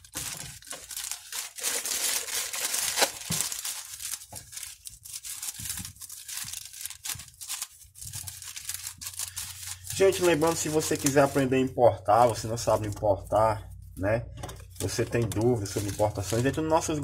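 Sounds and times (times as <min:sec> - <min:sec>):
scissors snipping plastic: 0:00.0 - 0:11.4
plastic mailer bag crinkling: 0:00.0 - 0:13.4, 0:14.7 - 0:17.0.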